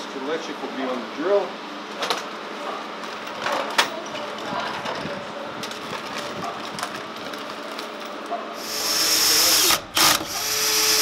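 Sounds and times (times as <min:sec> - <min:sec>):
cordless drill driving screw: 0:08.6 - 0:11.0.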